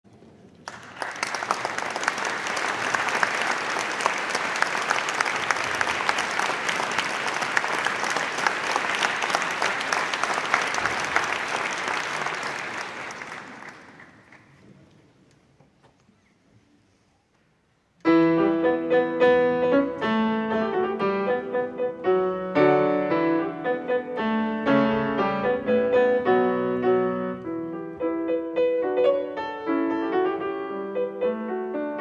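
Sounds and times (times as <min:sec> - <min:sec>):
audience applauding: 0:00.6 - 0:14.7.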